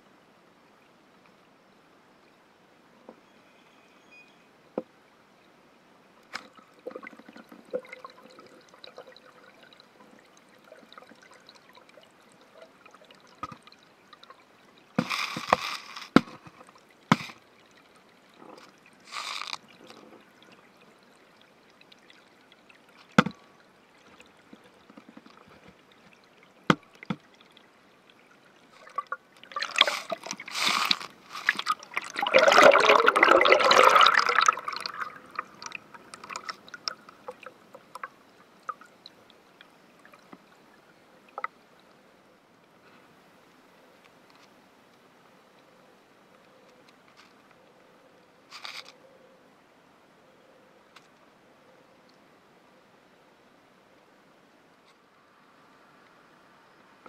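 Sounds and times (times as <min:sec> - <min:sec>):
water sloshing and gurgling: 0:06.3 - 0:42.2
water bubbling: 0:06.6 - 0:15.0, 0:16.6 - 0:41.8
underwater clicks and knocks: 0:23.1 - 0:23.4, 0:24.5 - 0:27.2.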